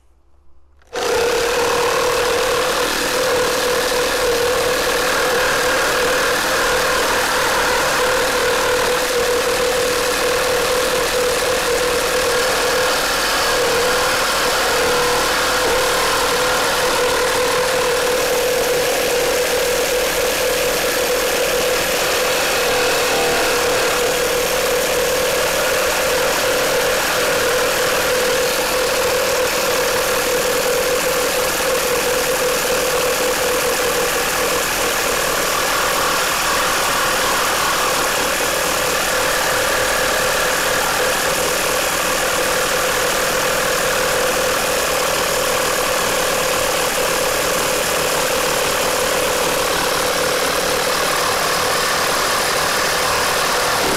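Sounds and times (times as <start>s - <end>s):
reciprocating saw cutting timber: 0.8s - 53.9s.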